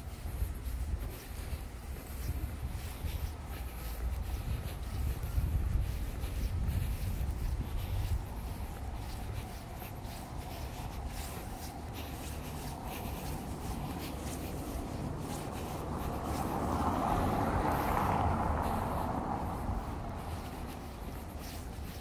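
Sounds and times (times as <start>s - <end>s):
passing vehicle: 0.0s - 22.0s.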